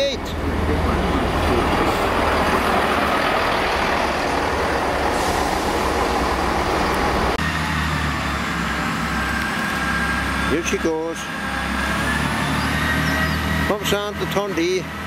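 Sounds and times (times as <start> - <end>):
diesel engine idling hum: 0.0 - 11.8
train passing rumble: 0.0 - 15.0.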